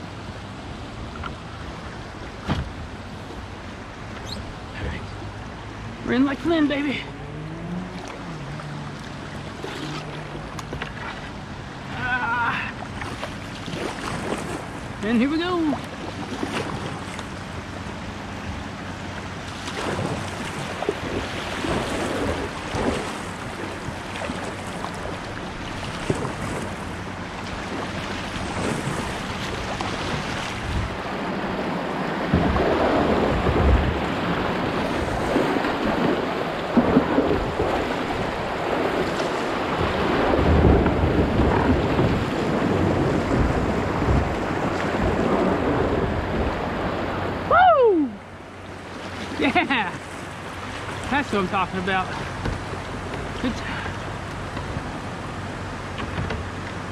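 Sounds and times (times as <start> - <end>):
river water rushing in rapids: 0.0 - 56.9
wind buffeting microphone: 12.9 - 56.9.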